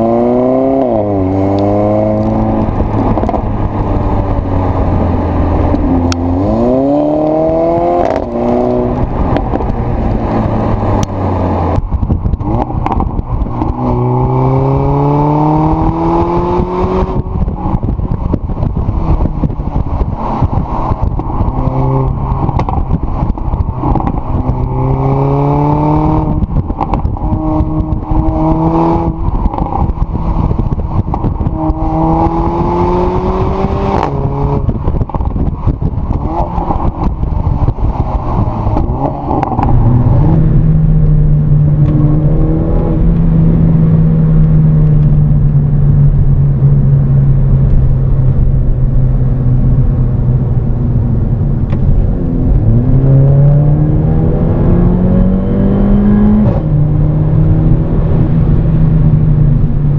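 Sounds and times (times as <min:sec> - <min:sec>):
car engine revving through gears: 0:00.0 - 0:45.5, 0:51.6 - 0:59.7
wind and road noise: 0:00.0 - 0:59.9.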